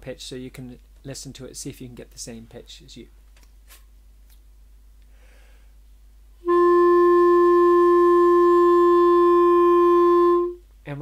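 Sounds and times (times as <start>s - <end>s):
clarinet long note: 6.4s - 10.6s.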